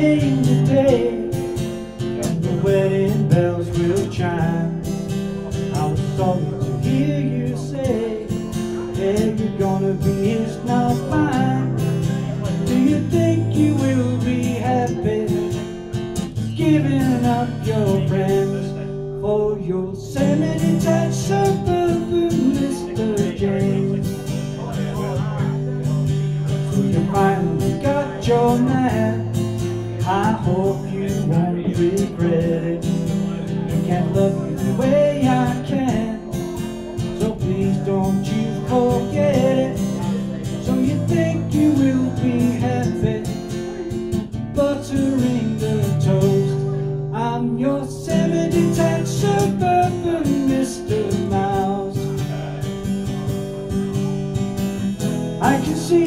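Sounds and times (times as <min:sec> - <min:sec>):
acoustic guitar strumming: 0:00.0 - 0:56.0
man singing: 0:00.0 - 0:56.0.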